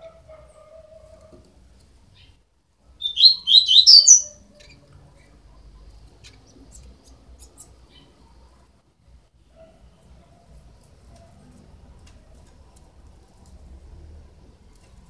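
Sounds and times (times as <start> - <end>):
bird chick chirping: 3.0 - 4.8.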